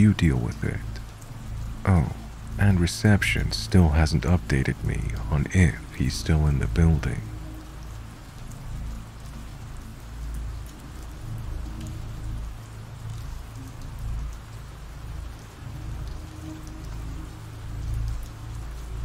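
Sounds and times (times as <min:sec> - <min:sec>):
low background music: 0:00.0 - 0:19.0
steady rain falling: 0:00.0 - 0:19.0.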